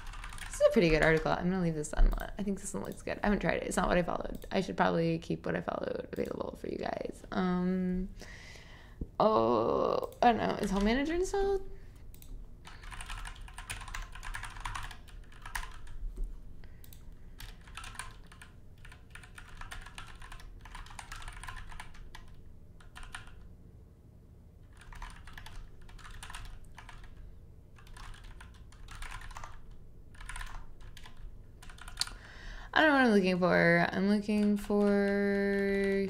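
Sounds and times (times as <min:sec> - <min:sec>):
typing on computer keyboard: 0:00.0 - 0:01.4, 0:10.2 - 0:11.0, 0:12.1 - 0:16.0, 0:16.8 - 0:23.5, 0:24.6 - 0:27.2, 0:27.8 - 0:32.2, 0:34.3 - 0:36.0.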